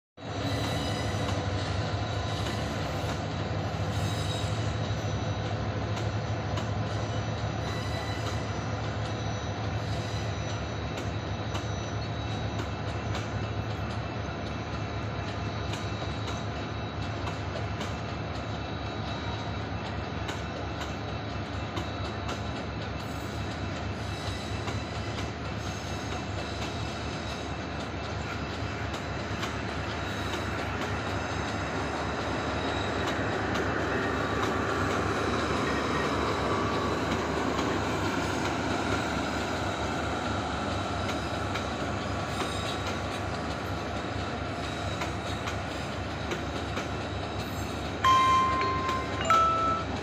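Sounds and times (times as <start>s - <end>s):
high tones from train wheels: 0.2s - 50.0s.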